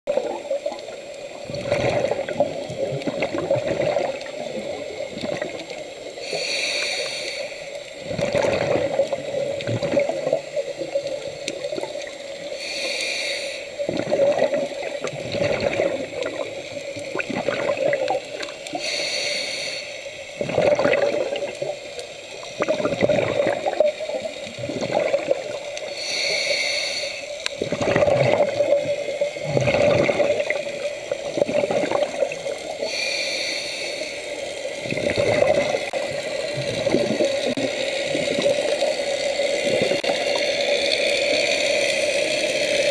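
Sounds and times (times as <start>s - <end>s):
exhaled bubbles gurgling: 0.1s - 19.1s, 20.2s - 26.6s, 27.3s - 42.9s
regulator hissing inhale: 6.0s - 8.0s, 12.4s - 13.9s, 18.4s - 20.4s, 25.7s - 27.6s, 32.3s - 34.8s.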